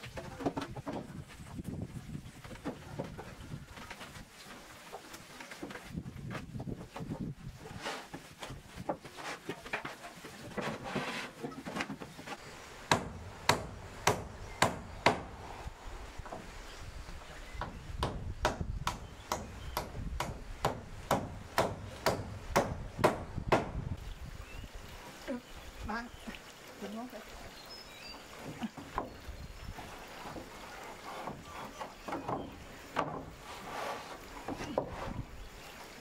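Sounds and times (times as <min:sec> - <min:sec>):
hammer striking nails: 0:18.0 - 0:23.7.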